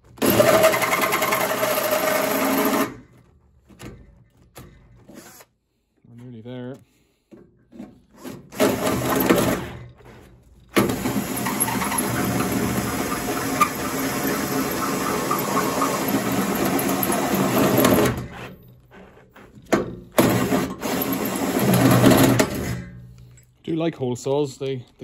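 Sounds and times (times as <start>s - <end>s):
power drill cutting sheet metal: 0.2s - 3.0s, 8.2s - 9.8s, 10.8s - 18.6s, 20.2s - 22.9s.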